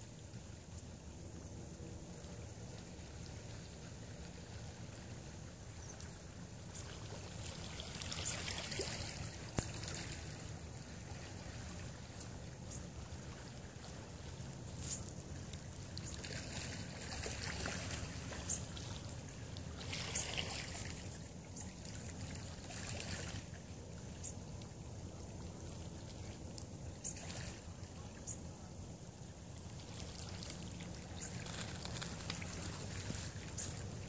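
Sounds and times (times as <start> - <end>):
wind rumbling on microphone: 24.9 - 34.0.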